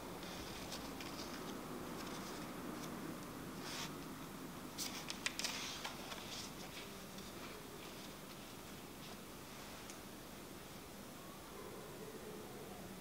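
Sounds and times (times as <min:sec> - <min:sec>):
faint room hum: 0:00.0 - 0:13.0
book pages rustling: 0:00.2 - 0:03.0, 0:04.8 - 0:09.2.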